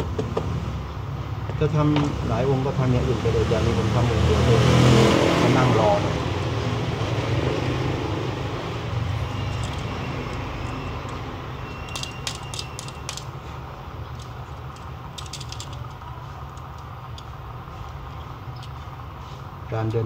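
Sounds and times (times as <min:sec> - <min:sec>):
binder clips clicking: 0:11.8 - 0:13.3.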